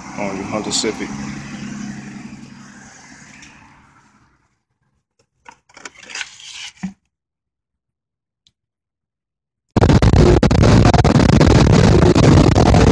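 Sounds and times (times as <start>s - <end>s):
car engine idling: 0.0s - 4.4s.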